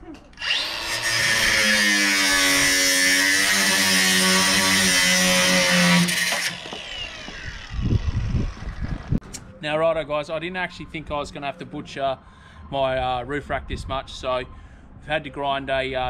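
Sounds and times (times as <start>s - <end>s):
angle grinder cutting metal: 0.4s - 9.0s
grinder disc winding down: 5.7s - 9.2s.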